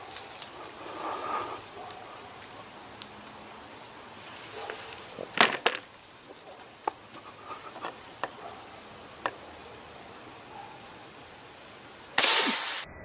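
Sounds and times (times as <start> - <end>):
air gun handling clicks and knocks: 5.3 - 5.9.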